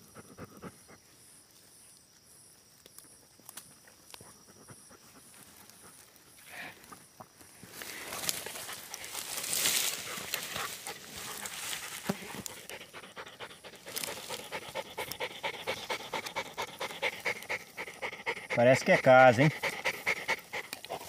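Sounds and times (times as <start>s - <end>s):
dog panting hard: 0.0s - 1.1s, 10.0s - 21.0s.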